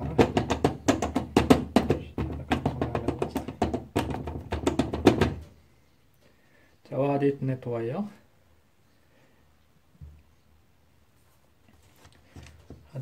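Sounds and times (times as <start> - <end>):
percussive music with bass: 0.0 - 5.4.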